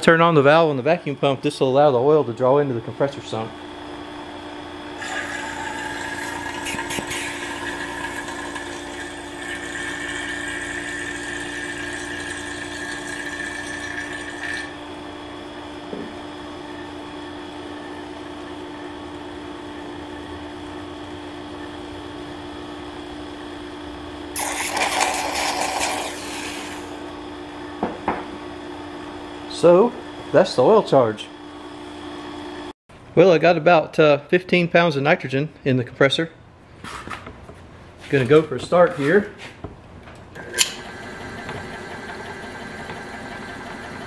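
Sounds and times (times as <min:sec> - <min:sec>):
vacuum pump humming: 0:03.6 - 0:16.6, 0:24.3 - 0:28.2, 0:40.2 - 0:44.0
air hissing through hose: 0:24.4 - 0:27.0
slurping hiss of air: 0:24.4 - 0:27.0.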